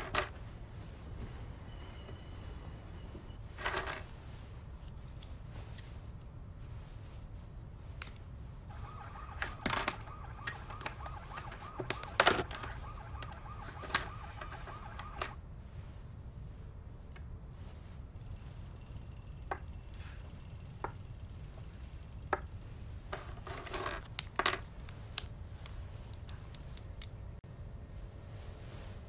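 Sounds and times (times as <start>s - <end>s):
faint wavering tone: 1.6s - 3.4s.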